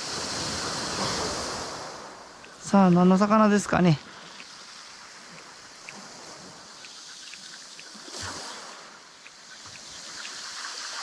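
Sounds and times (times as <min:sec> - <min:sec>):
waves washing on shore: 0:00.0 - 0:11.0
faint small ticks: 0:02.3 - 0:11.0.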